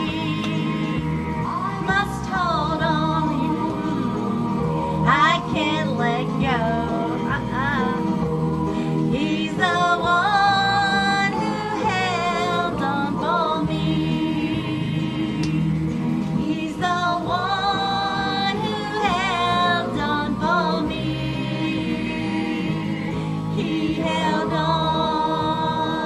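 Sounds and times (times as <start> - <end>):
person singing with vibrato: 0.0 - 15.5
gospel backing music: 0.0 - 26.0.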